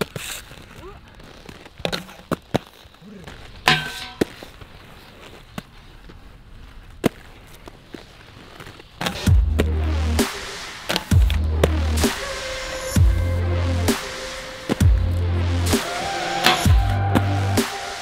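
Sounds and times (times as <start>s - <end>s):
skates clacking on ground: 0.0s - 9.7s, 15.8s - 17.8s
skate wheels rolling on concrete: 0.0s - 18.0s.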